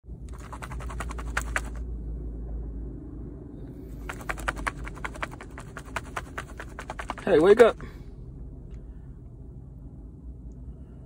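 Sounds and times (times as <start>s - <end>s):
rapid light clicks and taps: 4.0s - 7.7s.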